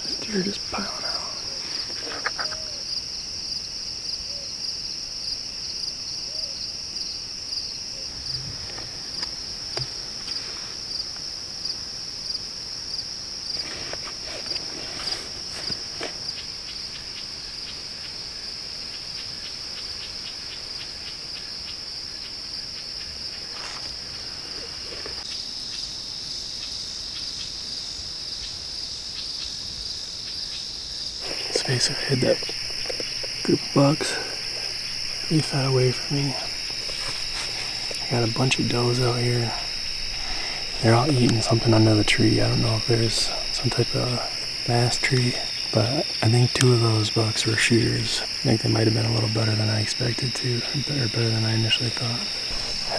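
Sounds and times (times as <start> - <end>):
crickets chirping: 0.0 - 52.9
faint rustles: 8.0 - 11.2, 13.5 - 16.8, 23.3 - 25.3, 31.2 - 46.2, 51.7 - 52.9.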